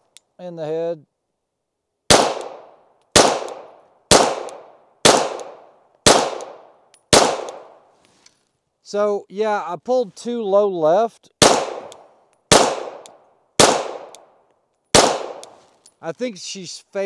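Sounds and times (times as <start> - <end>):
pistol shots echoing: 2.1 - 7.8, 11.4 - 14.3, 14.9 - 15.5.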